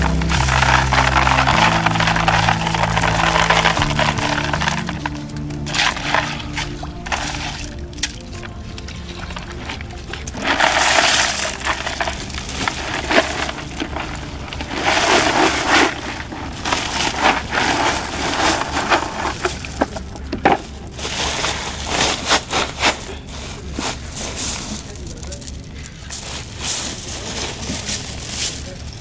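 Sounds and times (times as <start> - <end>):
snail shells clattering and crunching: 0.0 - 29.0.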